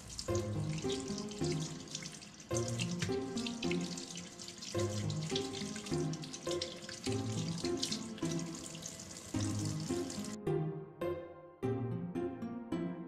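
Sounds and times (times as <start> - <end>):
water splashing in metal sink: 0.0 - 10.4
background music: 0.0 - 13.0.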